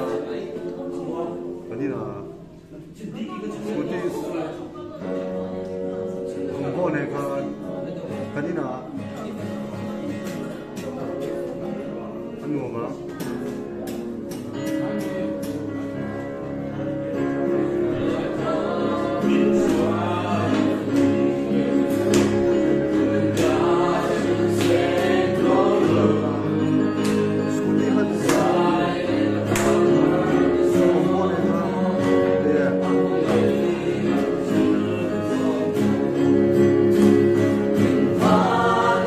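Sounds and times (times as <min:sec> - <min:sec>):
choir singing in harmony: 0:00.0 - 0:01.9, 0:03.4 - 0:08.3, 0:14.8 - 0:39.0.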